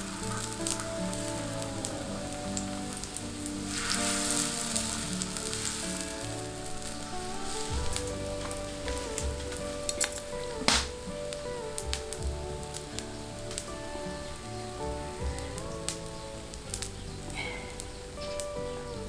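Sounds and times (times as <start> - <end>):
batter sizzling in hot oil: 0.0 - 8.2
soft background music: 0.0 - 19.0.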